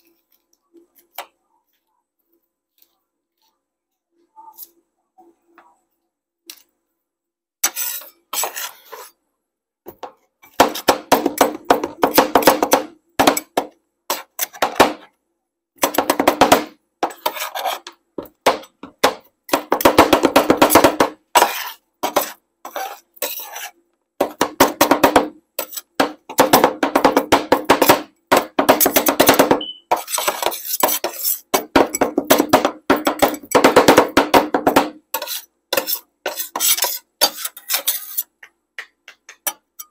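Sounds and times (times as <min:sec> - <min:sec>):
metal spatulas tapping steel plate: 0:24.4 - 0:39.9.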